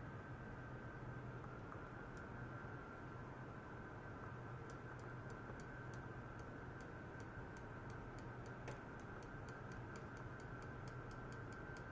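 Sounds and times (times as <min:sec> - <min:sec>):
low electrical hum: 0:00.0 - 0:11.9
rapid ticking: 0:04.7 - 0:11.9.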